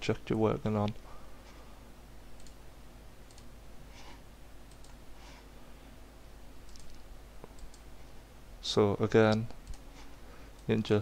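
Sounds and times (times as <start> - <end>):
low steady hum: 0.0 - 11.0
mouse and keyboard clicks: 6.6 - 7.9.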